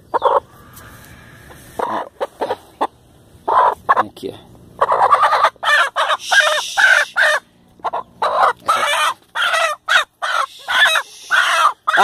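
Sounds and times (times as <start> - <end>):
chicken squawking in alarm: 3.4 - 4.1, 4.8 - 12.0.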